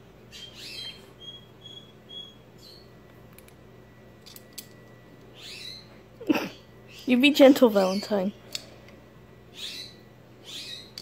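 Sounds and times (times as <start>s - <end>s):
cockatiel chirping: 0.3s - 2.8s, 5.4s - 5.8s, 9.5s - 10.9s
whistled peeps: 0.3s - 2.9s.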